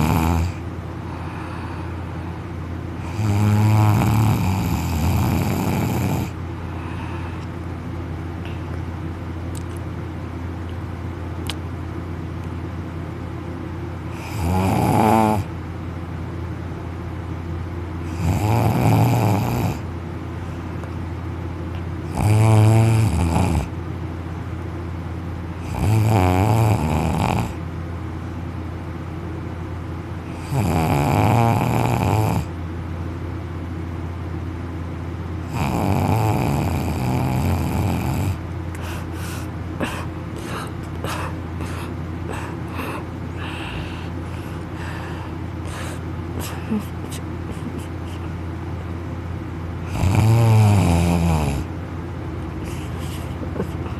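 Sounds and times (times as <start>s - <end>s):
man snoring loudly: 0.0s - 0.6s, 3.0s - 6.4s, 14.2s - 15.5s, 18.1s - 19.8s, 22.1s - 23.7s, 25.6s - 27.6s, 30.3s - 32.5s, 35.5s - 38.4s, 49.9s - 51.7s.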